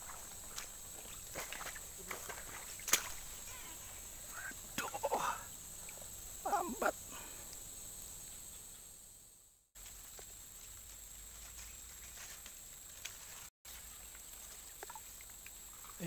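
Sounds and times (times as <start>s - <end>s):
insect drone: 0.0s - 16.0s.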